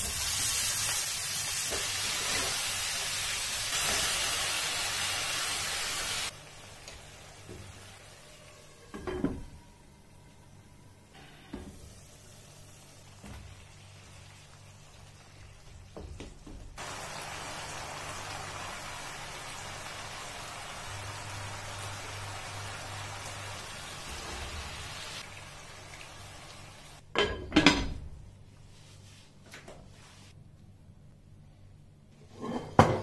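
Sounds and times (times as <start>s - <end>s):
curry sizzling in a pan: 0.0s - 8.9s, 11.7s - 27.0s.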